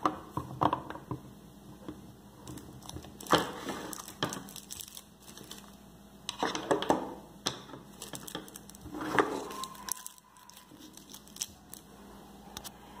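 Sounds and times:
plastic packaging crinkling: 0:02.4 - 0:05.8, 0:07.9 - 0:12.0.

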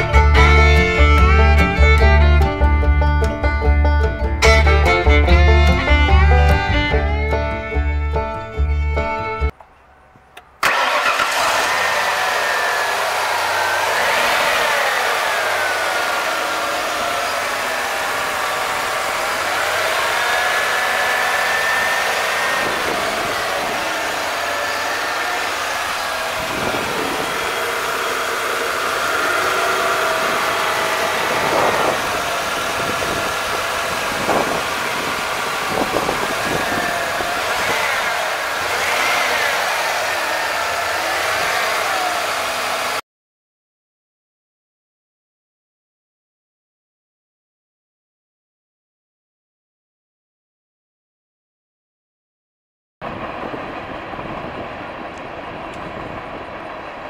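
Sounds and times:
car engine idling: 0:08.3 - 0:43.0
mid-pitched whine: 0:15.1 - 0:36.8.

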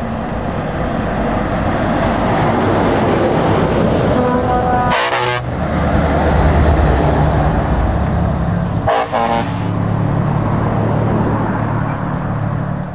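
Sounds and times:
truck diesel engine passing: 0:00.0 - 0:12.9
air horn blasts: 0:04.2 - 0:05.5, 0:08.8 - 0:09.8.

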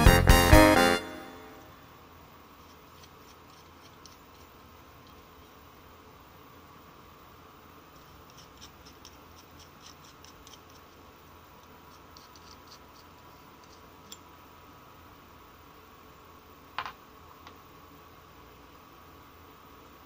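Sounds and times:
faint steady hum: 0:00.0 - 0:20.0
small metal parts clicking: 0:02.7 - 0:05.2.

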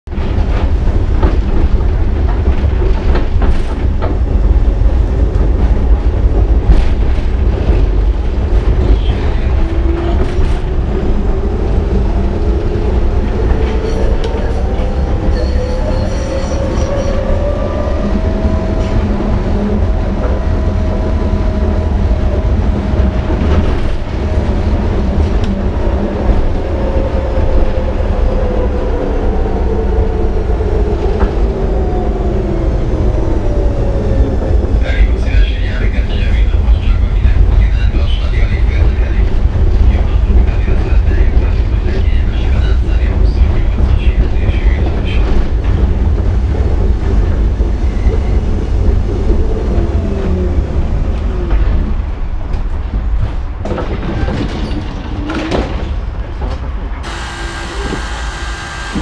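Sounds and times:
tram rumble: 0:00.0 - 0:59.0
wheels rattling over track: 0:00.1 - 0:27.9, 0:33.8 - 0:59.0
tram motor whine: 0:57.0 - 0:59.0.

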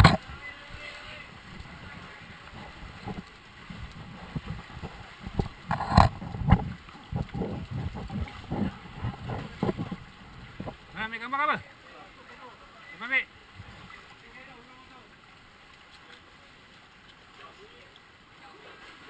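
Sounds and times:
feet splashing through water: 0:01.0 - 0:11.0, 0:15.4 - 0:19.0.

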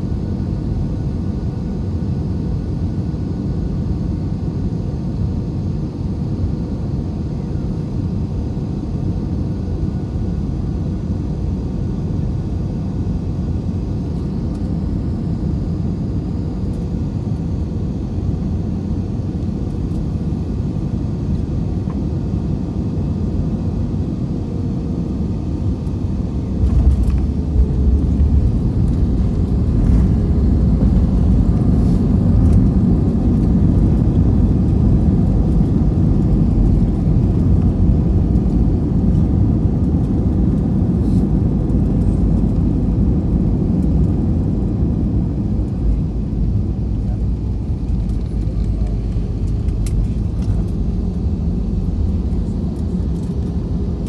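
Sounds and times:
jet engine and airflow rumble: 0:00.0 - 0:54.0
wheels rumbling on runway: 0:26.4 - 0:54.0.

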